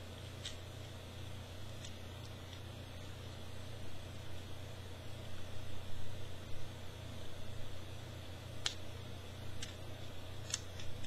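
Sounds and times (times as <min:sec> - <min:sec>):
steady low hum: 0:00.0 - 0:11.0
plastic toy parts clicking: 0:10.4 - 0:11.0.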